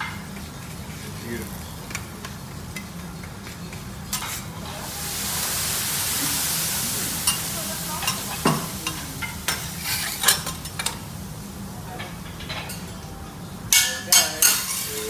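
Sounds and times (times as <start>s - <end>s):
food sizzling on a griddle: 0.0s - 12.9s, 13.8s - 15.0s
metal spatula scraping a hot plate: 9.5s - 10.9s.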